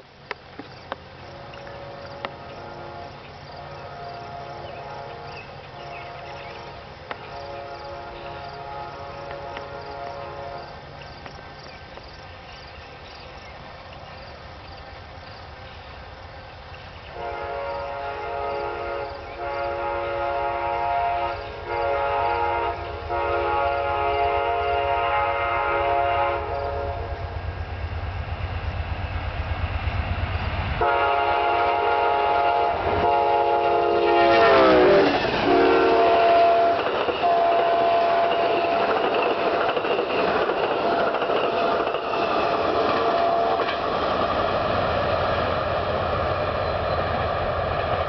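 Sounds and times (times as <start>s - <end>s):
train rumble: 0.0s - 48.0s
locomotive air horn blasts: 1.3s - 10.8s, 17.2s - 27.2s, 30.8s - 39.0s, 42.8s - 43.7s.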